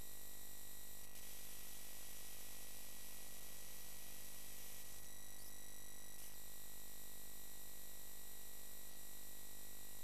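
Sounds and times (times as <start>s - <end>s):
electrical hiss and buzz: 1.0s - 6.5s.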